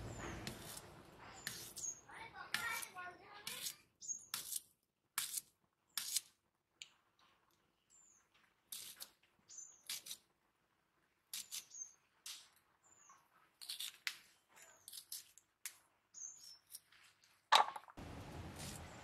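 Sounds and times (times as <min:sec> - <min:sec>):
birds chirping faintly: 0:00.0 - 0:04.5, 0:11.3 - 0:15.3, 0:16.0 - 0:16.8
knife cutting radish: 0:00.1 - 0:06.4, 0:08.7 - 0:10.3, 0:11.3 - 0:12.5, 0:13.6 - 0:15.8, 0:18.4 - 0:19.0.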